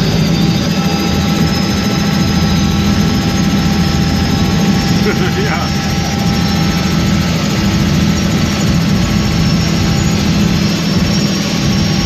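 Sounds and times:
faint high whine: 0:00.0 - 0:12.0
helicopter engine and rotors droning: 0:00.0 - 0:12.0.

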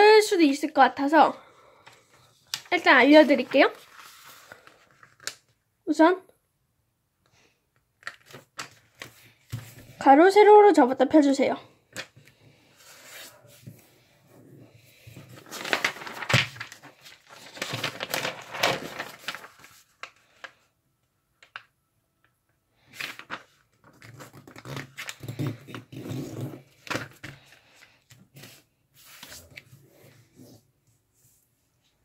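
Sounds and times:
paper being folded and creased: 0:01.8 - 0:05.6, 0:08.0 - 0:10.0, 0:11.9 - 0:13.8, 0:15.0 - 0:20.6, 0:22.8 - 0:30.7.

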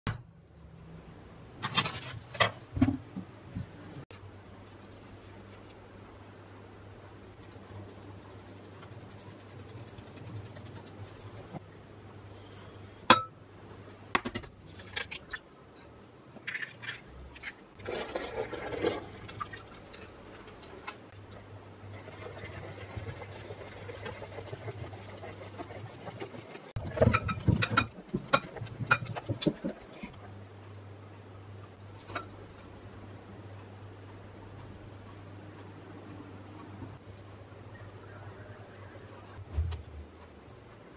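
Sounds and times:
low steady hum: 0:00.1 - 0:40.9
utensil stirring batter in glass bowl: 0:07.4 - 0:11.6, 0:22.0 - 0:30.0
milk pouring: 0:17.8 - 0:20.1.

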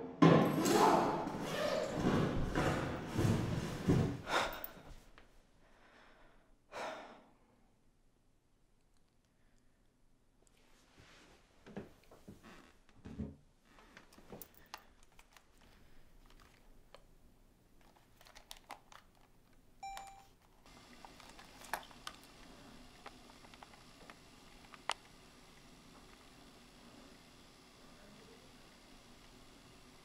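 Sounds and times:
short electronic beep: 0:19.8 - 0:20.3.

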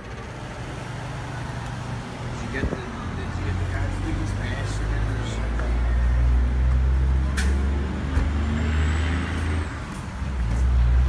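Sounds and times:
vehicle engine idling: 0:00.0 - 0:08.3.

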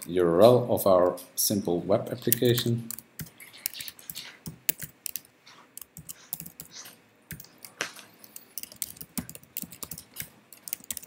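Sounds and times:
keyboard typing: 0:02.2 - 0:11.0.

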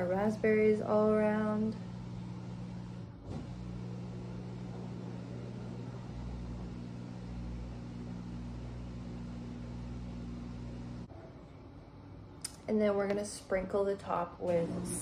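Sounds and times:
appliance motor humming: 0:01.4 - 0:11.1.

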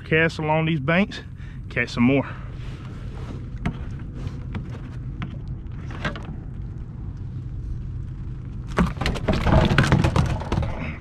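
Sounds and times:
low rumble: 0:00.0 - 0:11.0
fish thumping on plastic hatch: 0:08.7 - 0:11.0.

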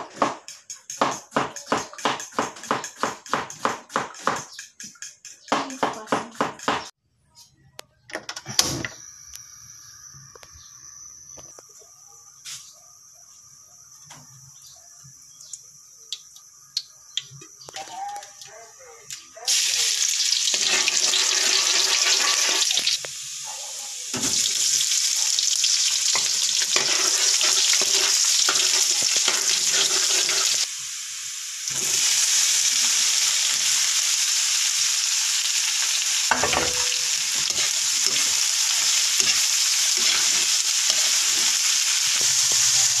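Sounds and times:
garlic sizzling in hot oil: 0:19.1 - 0:43.0.

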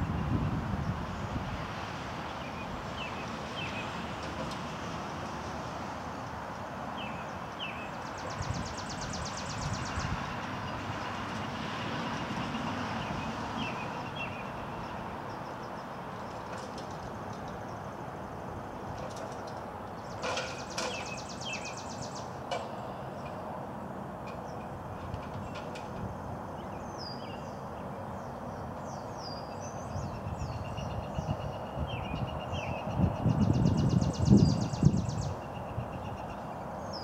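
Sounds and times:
birds chirping and trilling: 0:02.4 - 0:04.4, 0:06.2 - 0:11.5, 0:12.4 - 0:17.9, 0:19.1 - 0:23.4, 0:26.5 - 0:37.0.

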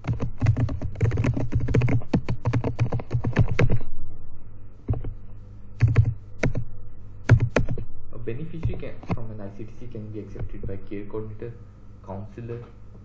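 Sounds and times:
typing on a computer keyboard: 0:00.0 - 0:03.8, 0:05.8 - 0:06.6, 0:07.3 - 0:07.8.

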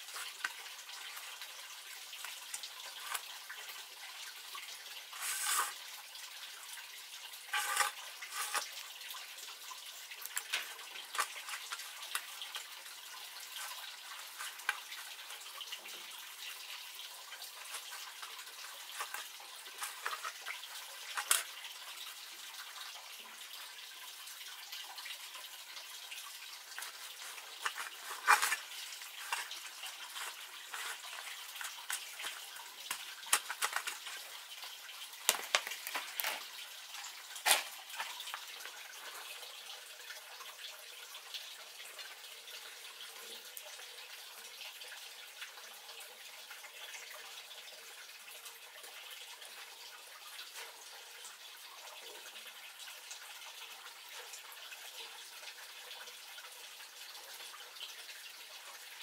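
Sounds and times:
clatter in metal bowl: 0:07.5 - 0:08.7, 0:10.3 - 0:12.7, 0:17.6 - 0:21.5, 0:26.8 - 0:34.3, 0:35.3 - 0:36.5
hands rustling dry mixture: 0:26.8 - 0:32.4.

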